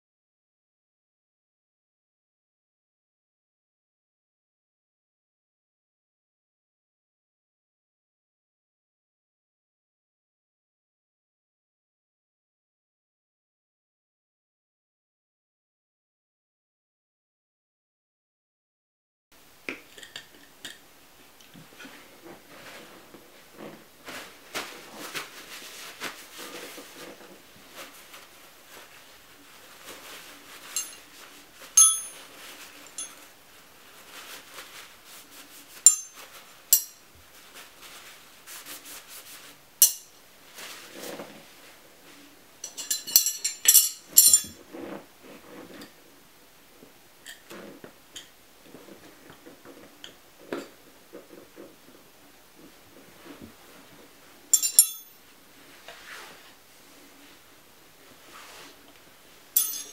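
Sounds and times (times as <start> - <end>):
rubbing and rustling: 21.1 - 59.9
metal tyre levers clinking: 31.8 - 32.2, 54.6 - 55.1, 59.6 - 59.9.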